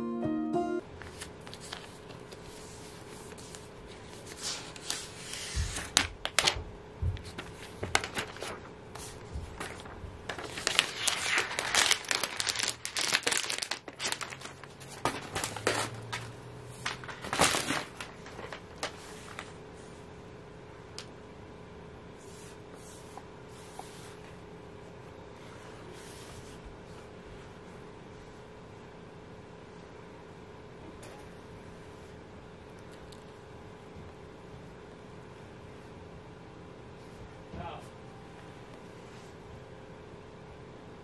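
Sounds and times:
plastic wrap crinkling: 0:07.3 - 0:19.5.

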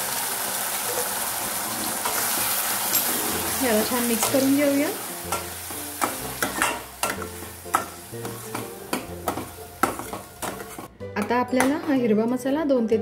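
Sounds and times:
paste sizzling in hot oil: 0:00.0 - 0:10.9
spoon clinking and scraping pan: 0:01.8 - 0:10.9.

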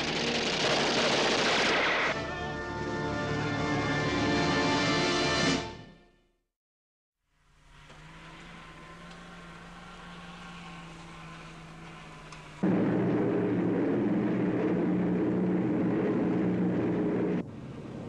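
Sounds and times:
loud engine running: 0:00.0 - 0:02.1, 0:07.6 - 0:17.4.

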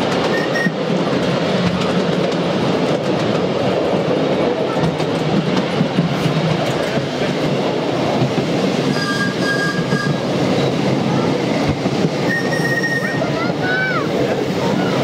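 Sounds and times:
small wheels rumbling on rails: 0:00.0 - 0:15.0.

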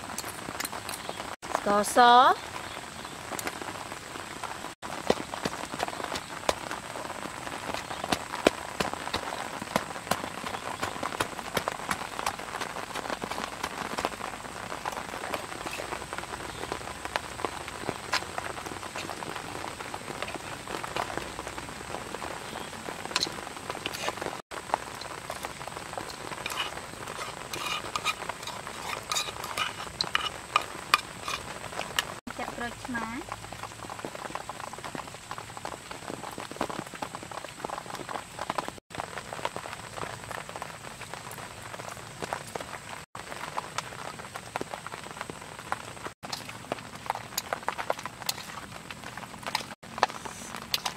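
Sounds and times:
pestle clicking and scraping in mortar: 0:07.6 - 0:14.2, 0:25.2 - 0:32.2.

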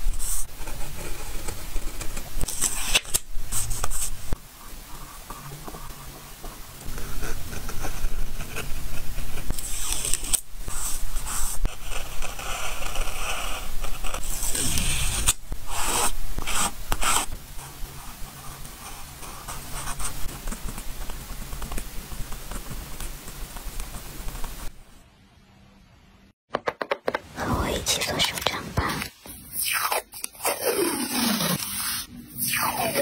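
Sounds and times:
stickers rubbed onto paper: 0:27.6 - 0:33.0.

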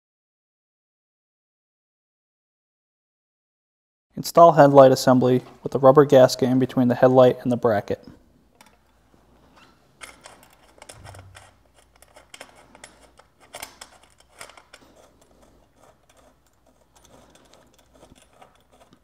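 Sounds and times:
metal parts clicking and tapping: 0:08.5 - 0:09.0, 0:09.6 - 0:19.0.

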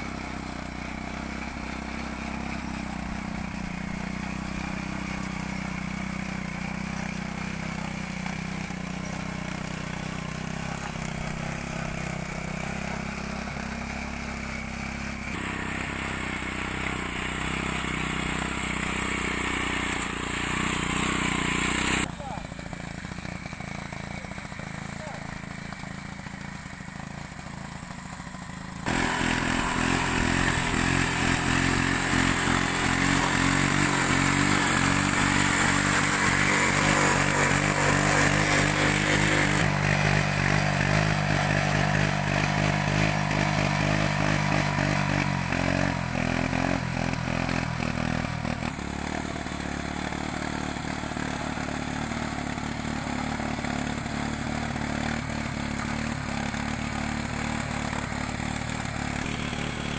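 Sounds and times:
petrol engine running under load: 0:15.3 - 0:50.5.

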